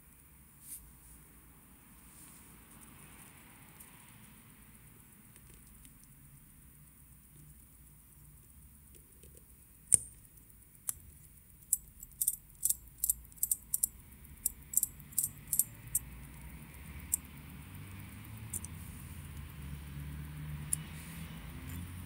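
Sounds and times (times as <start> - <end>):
metal tweezers clicking: 11.6 - 16.0, 18.5 - 18.7.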